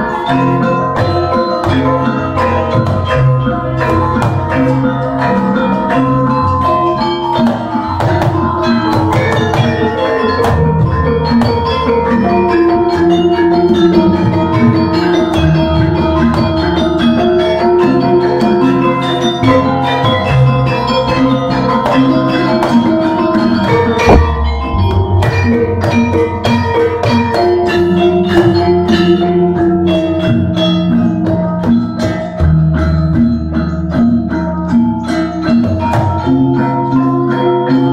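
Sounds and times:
hand drums: 0:00.0 - 0:37.9
metallophones and gongs struck: 0:00.0 - 0:37.9.

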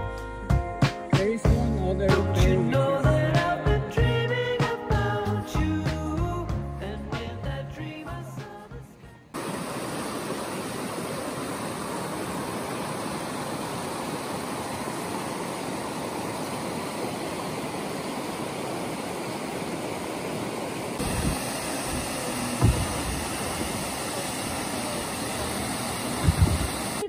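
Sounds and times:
stream rushing over rock: 0:09.4 - 0:27.0.

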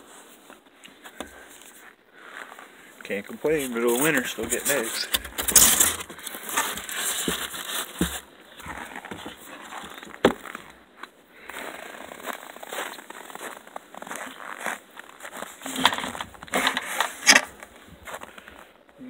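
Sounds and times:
footsteps crunching in snow: 0:00.0 - 0:18.7.

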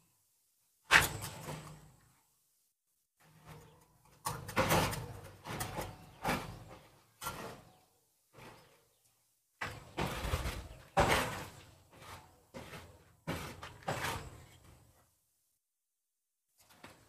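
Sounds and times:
sudden knocks or scrapes: 0:09.6 - 0:14.8.

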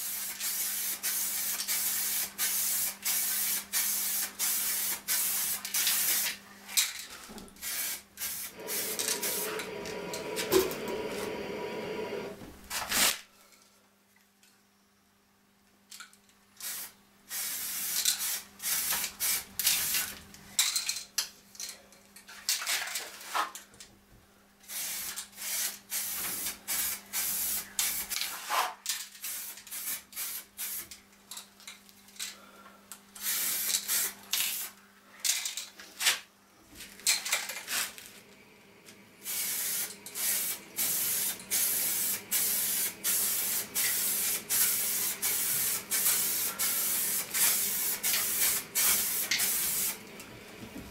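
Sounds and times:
spray paint can hissing: 0:00.0 - 0:06.4, 0:07.6 - 0:11.3, 0:16.6 - 0:20.0, 0:24.7 - 0:28.2, 0:29.2 - 0:31.0, 0:33.2 - 0:34.7, 0:39.2 - 0:50.0.

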